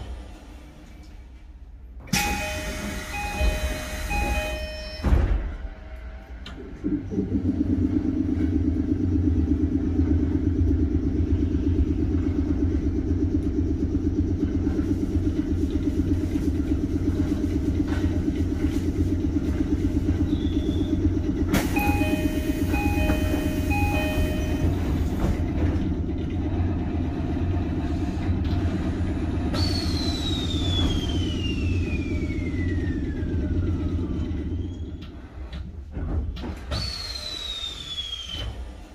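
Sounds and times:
electric train equipment hum: 0:00.0 - 0:38.9
door chime tone pattern: 0:02.2 - 0:05.2, 0:21.8 - 0:24.9
sliding doors hissing: 0:36.5 - 0:38.9
hiss with falling whistle: 0:36.8 - 0:38.7.

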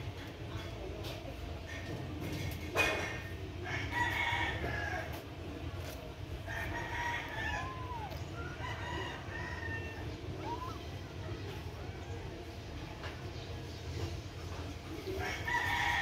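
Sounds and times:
rooster crowing: 0:03.6 - 0:05.2, 0:06.5 - 0:10.8, 0:15.2 - 0:16.0.

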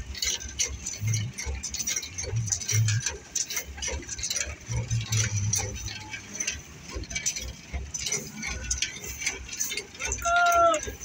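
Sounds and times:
low engine rumble: 0:00.0 - 0:11.0.

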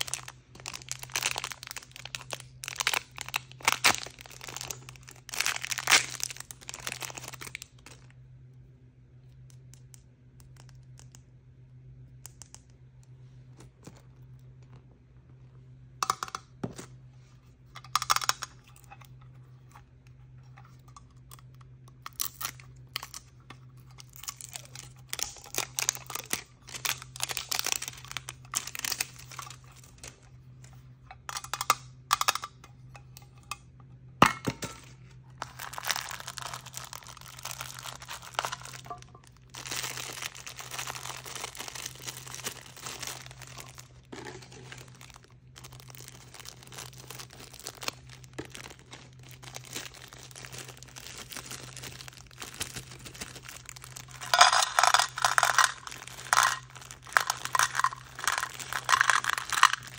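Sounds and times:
plastic bag crinkling: 0:00.0 - 0:08.1, 0:23.8 - 0:30.3, 0:35.3 - 0:59.9
faint low hum: 0:00.0 - 0:59.9.

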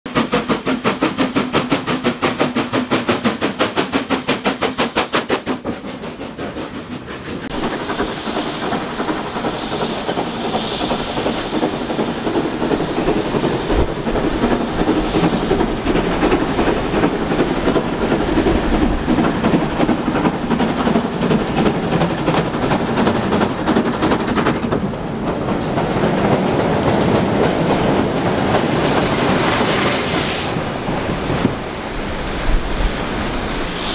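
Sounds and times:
rushing hiss of steam: 0:00.1 - 0:24.9, 0:26.2 - 0:33.9
steam locomotive exhaust beating: 0:00.1 - 0:33.9
steam train clattering past: 0:00.1 - 0:33.9.

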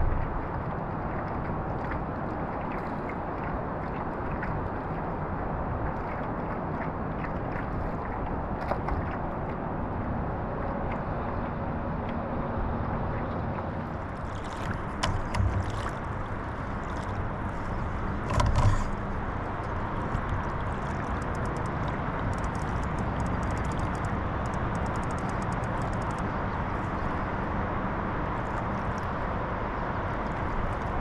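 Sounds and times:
water washing around kayak: 0:00.0 - 0:31.0
wind: 0:00.0 - 0:31.0
knocks against kayak hull: 0:14.7 - 0:16.0
fishing reel clicking: 0:21.2 - 0:26.2.

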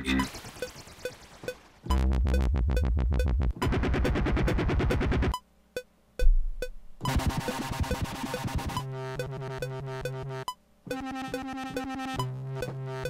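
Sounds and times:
dubstep wobble bass: 0:00.0 - 0:05.3
rhythmic synth pattern: 0:00.0 - 0:05.4, 0:06.2 - 0:13.0.

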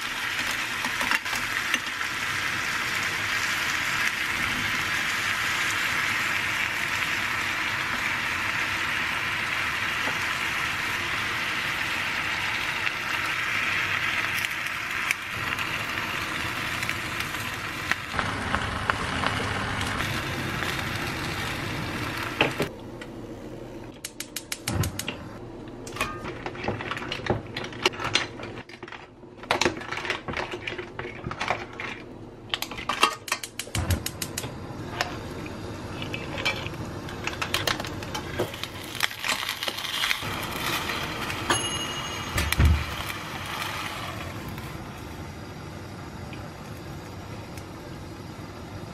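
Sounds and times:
steady hiss over pot: 0:00.0 - 0:22.7, 0:33.5 - 0:48.9.

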